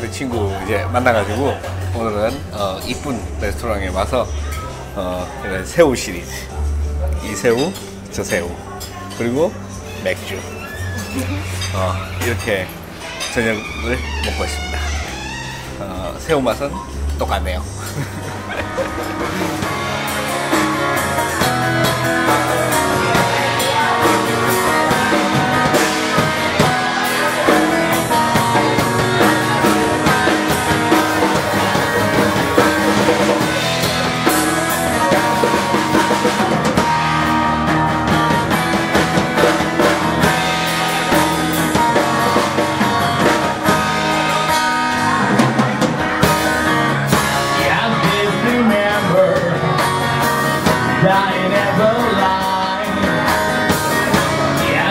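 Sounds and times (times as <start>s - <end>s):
guitar: 0.0s - 54.9s
drum kit: 17.9s - 54.9s
person singing: 21.9s - 34.3s, 47.3s - 54.9s.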